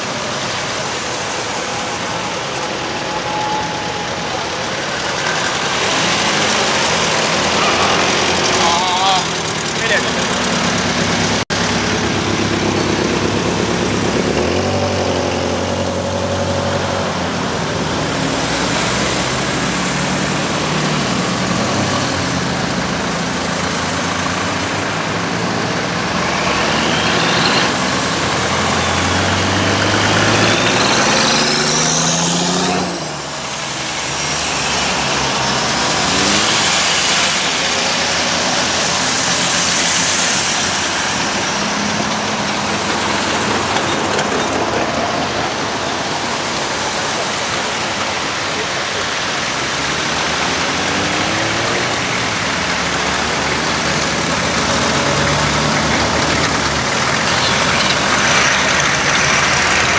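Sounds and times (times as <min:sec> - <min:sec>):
cars passing at low speed: 0:00.0 - 0:59.9.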